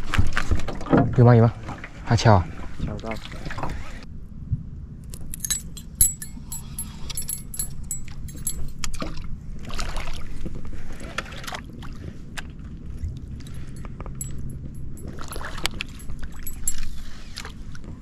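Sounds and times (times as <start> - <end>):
steady low hum: 5.0 - 8.8, 13.0 - 17.0
metallic clicks and rattles: 5.1 - 8.9, 13.4 - 16.9.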